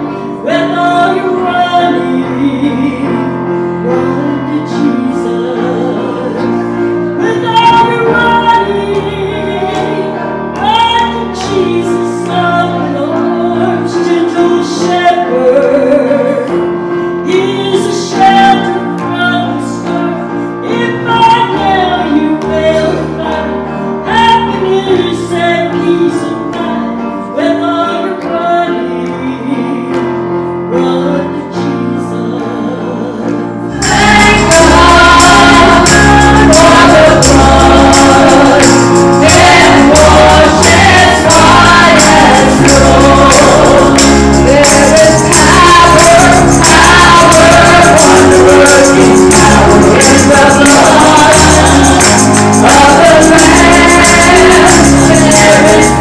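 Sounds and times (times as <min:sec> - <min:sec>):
gospel choir singing: 0:00.0 - 0:29.8, 0:30.7 - 0:56.0
woman singing: 0:00.3 - 0:06.6, 0:07.2 - 0:16.5, 0:17.3 - 0:30.1, 0:30.7 - 0:56.0
electronic keyboard: 0:33.2 - 0:56.0.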